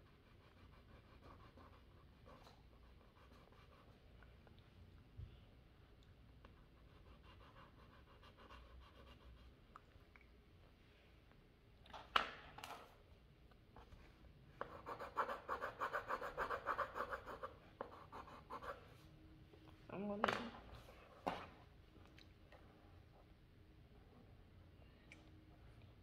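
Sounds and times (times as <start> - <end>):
pencil scribbling on paper: 0.0 - 4.0, 6.7 - 9.5, 14.6 - 18.9.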